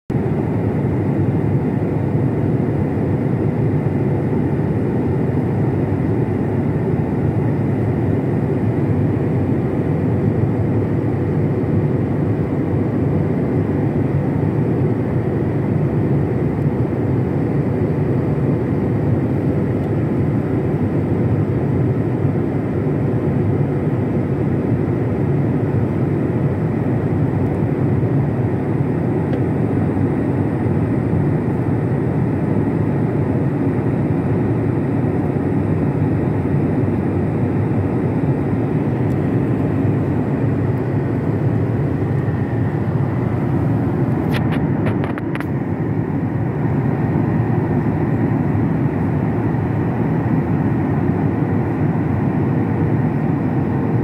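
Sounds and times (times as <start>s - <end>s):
airliner cabin engine roar: 0.1s - 54.0s.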